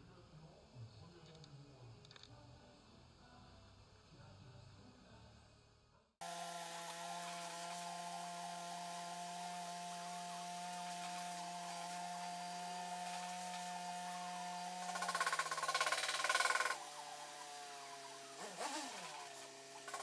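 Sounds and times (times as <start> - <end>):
welding torch hissing: 6.2 - 20.0.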